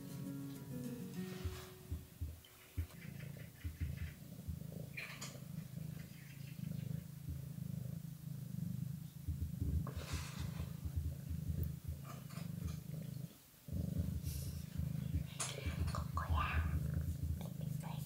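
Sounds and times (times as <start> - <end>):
cats purring: 0.0 - 18.0.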